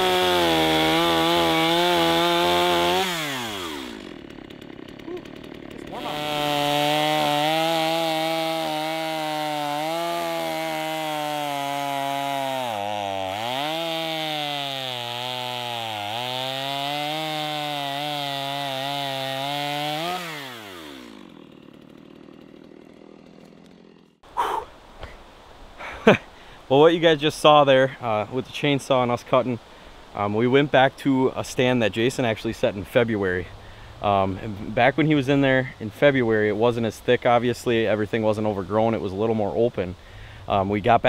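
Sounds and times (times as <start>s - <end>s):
chainsaw cutting wood: 0.0s - 24.2s.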